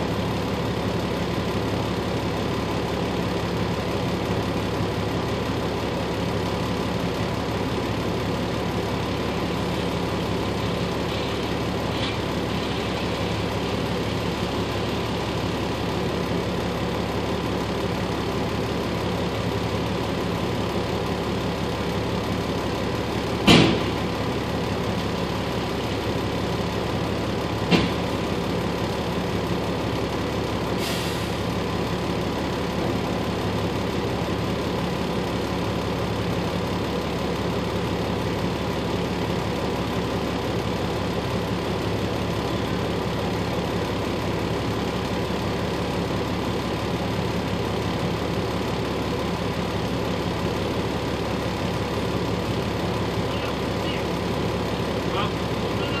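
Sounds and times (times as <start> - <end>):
vehicle engine idling: 0.0 - 56.0
loud sharp bang: 23.4 - 24.0.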